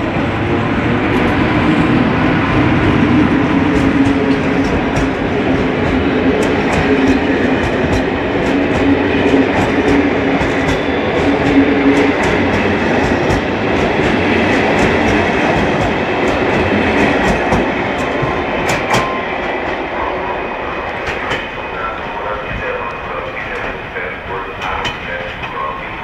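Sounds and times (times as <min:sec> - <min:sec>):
train rumble: 0:00.0 - 0:26.0
train wheels clicking over rail joints: 0:03.5 - 0:19.8, 0:21.0 - 0:21.6, 0:24.4 - 0:25.8.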